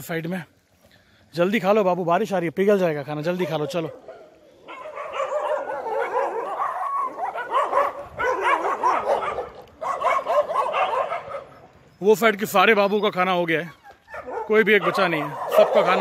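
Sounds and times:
dogs yelping and barking: 3.3s - 16.0s.

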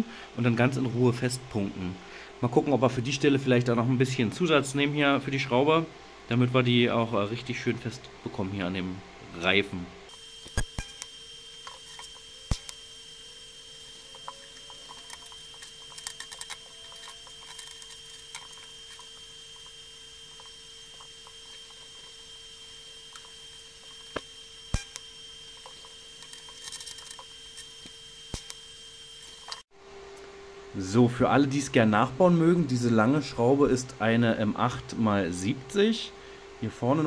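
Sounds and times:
welder hum with high whine: 0.0s - 37.0s
welding arc hiss: 10.1s - 29.7s.

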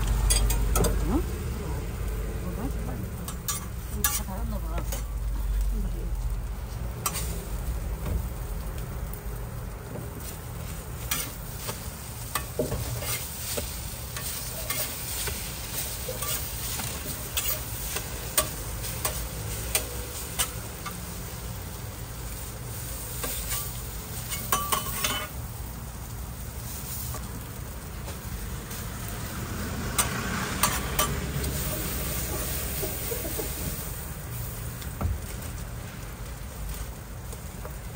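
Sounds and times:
utensils scraping a hot plate: 0.0s - 1.1s, 3.2s - 5.2s, 10.2s - 21.4s, 23.1s - 25.4s, 29.9s - 33.9s
food sizzling on a griddle: 0.0s - 37.9s.

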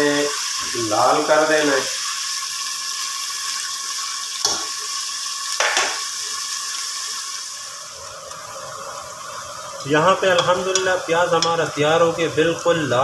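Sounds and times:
onions sizzling in hot oil: 0.0s - 13.0s
spatula striking pot: 10.3s - 11.7s.

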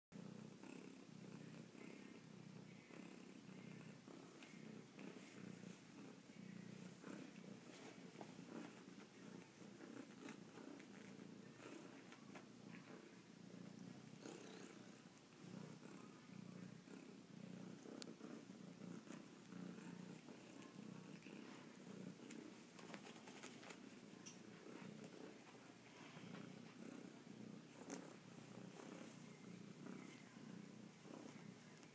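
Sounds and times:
cat purring: 0.2s - 31.9s
soft rustles and clicks: 6.7s - 13.8s, 18.9s - 30.2s.

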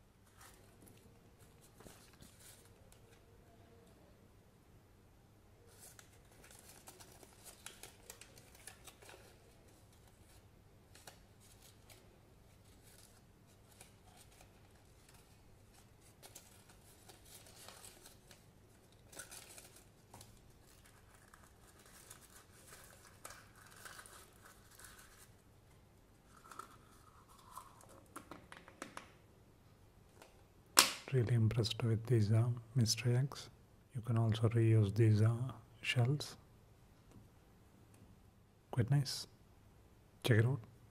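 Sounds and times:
paper sticker crinkling: 5.7s - 25.4s.

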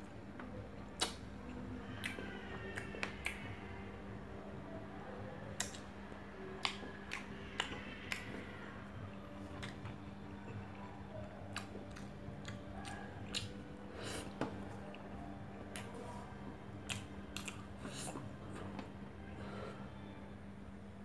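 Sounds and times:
steady low hum: 0.0s - 21.0s
wet eating clicks and smacks: 1.0s - 1.2s, 1.9s - 3.5s, 5.6s - 5.9s, 6.6s - 8.4s, 11.5s - 13.6s, 16.8s - 18.2s.

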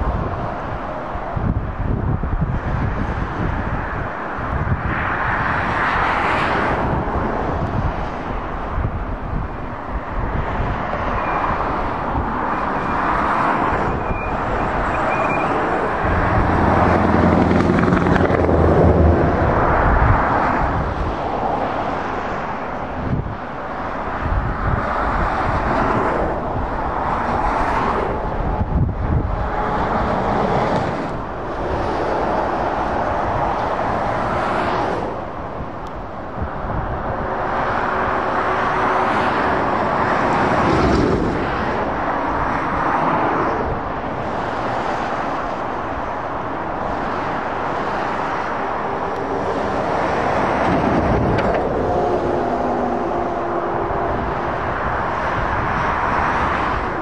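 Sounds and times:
motorway traffic: 0.0s - 57.0s
lorry rumbling past: 13.5s - 20.8s, 47.7s - 57.0s.

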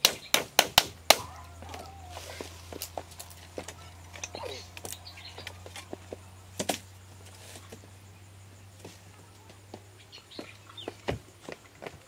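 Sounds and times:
bamboo poles knocking and clattering: 0.0s - 7.9s.

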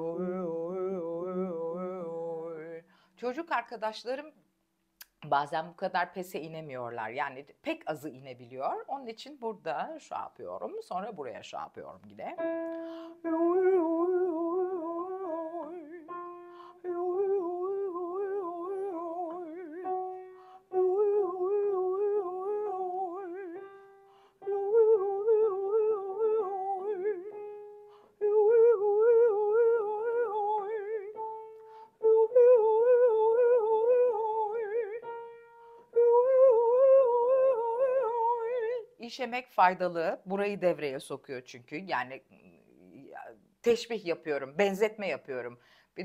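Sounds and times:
woman singing vocal exercise: 0.0s - 3.5s, 9.5s - 27.4s, 28.1s - 39.1s
piano notes: 12.3s - 38.3s.

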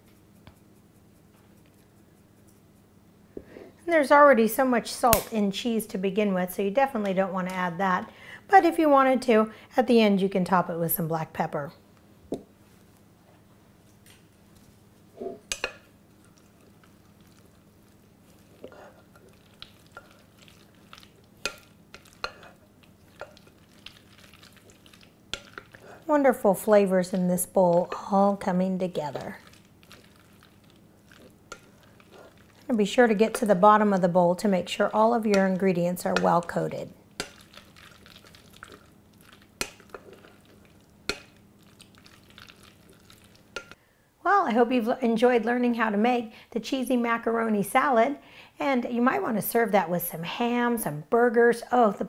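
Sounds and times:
spatula mixing wet salad: 15.4s - 43.8s.

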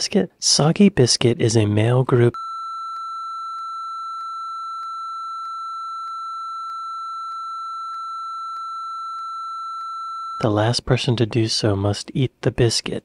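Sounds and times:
high pure bleep tone: 2.3s - 10.6s.

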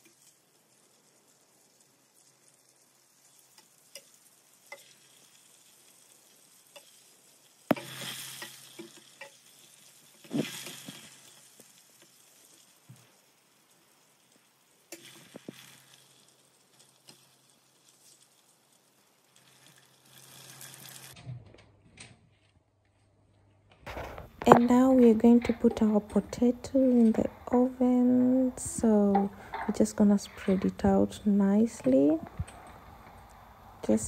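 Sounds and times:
chicken sizzling in oil: 0.0s - 21.2s.

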